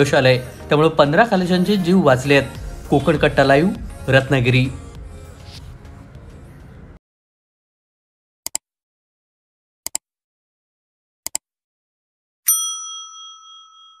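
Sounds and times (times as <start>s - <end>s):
bright bell ding: 12.5s - 14.0s.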